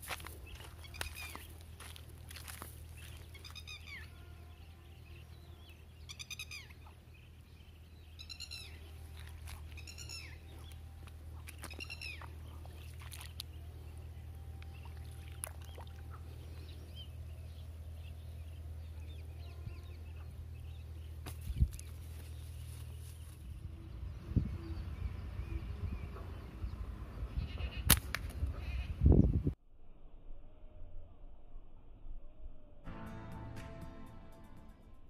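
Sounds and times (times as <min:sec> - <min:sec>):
steady low hum: 0:00.0 - 0:27.5.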